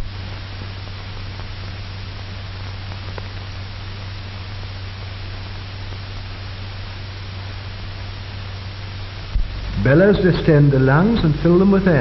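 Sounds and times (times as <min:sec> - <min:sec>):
film soundtrack hiss: 0:00.0 - 0:12.0
low constant hum: 0:00.0 - 0:12.0.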